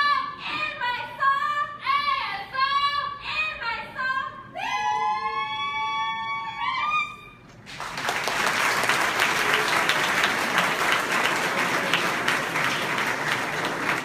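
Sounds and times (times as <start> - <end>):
audience applause and cheering: 7.7 - 14.0.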